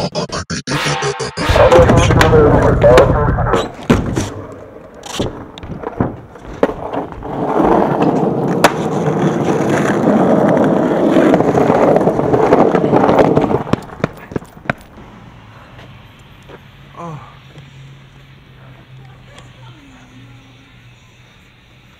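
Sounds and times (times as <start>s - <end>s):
skateboard wheels rolling on asphalt: 2.3s - 16.9s
skateboard knocks: 5.2s - 10.0s.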